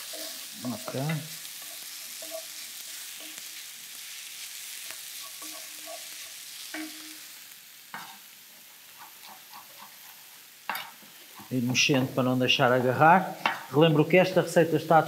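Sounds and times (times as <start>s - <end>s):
wooden spoon stirring: 0.0s - 3.6s, 4.8s - 7.0s
food sizzling in a frying pan: 0.0s - 15.0s.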